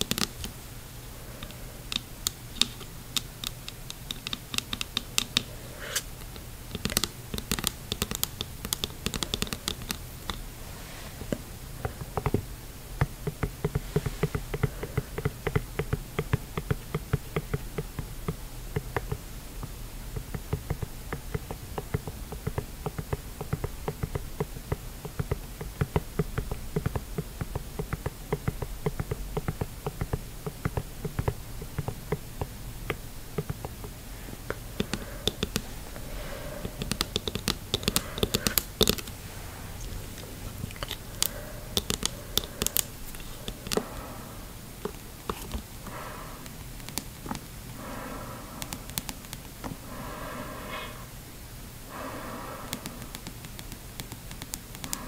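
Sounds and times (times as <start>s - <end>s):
fingernails tapping on diving mask: 0.0s - 0.6s, 1.4s - 10.5s, 11.2s - 39.2s, 40.6s - 51.0s, 51.9s - 55.0s.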